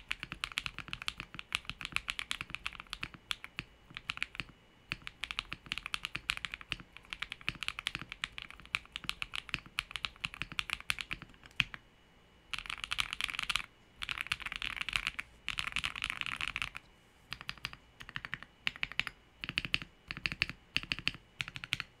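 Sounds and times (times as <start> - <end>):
typing on mechanical keyboard: 0.0 - 11.8, 12.5 - 22.0.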